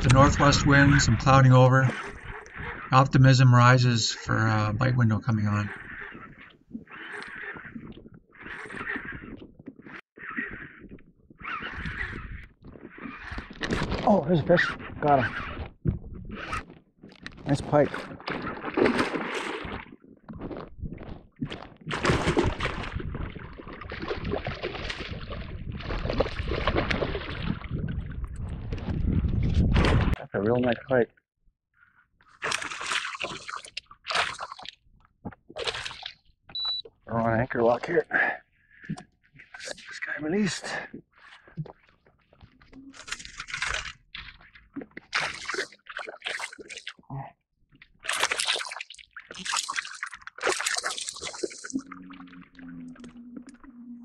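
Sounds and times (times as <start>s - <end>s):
water splashing and sloshing: 0.0s - 30.8s, 32.2s - 54.0s
fish splashing in water: 18.3s - 20.5s, 21.5s - 27.7s, 32.3s - 34.8s, 35.5s - 36.3s, 42.9s - 44.4s, 45.0s - 47.0s, 48.0s - 53.7s.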